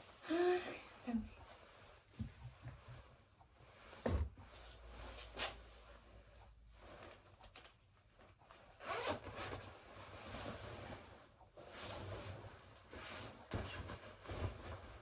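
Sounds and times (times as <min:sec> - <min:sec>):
fabric rustling: 0:08.0 - 0:15.0
zipper pulled open: 0:08.8 - 0:09.7.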